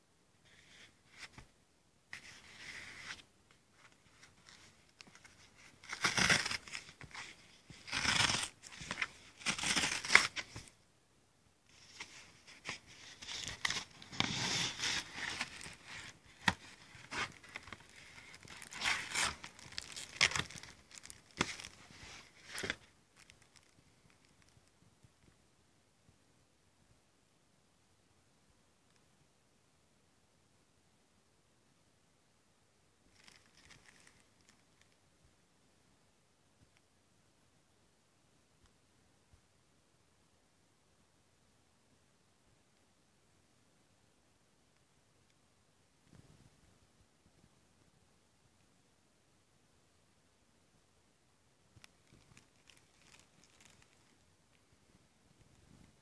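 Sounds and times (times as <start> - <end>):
cardboard tearing and rustling: 4.4 - 10.7, 12.0 - 22.9.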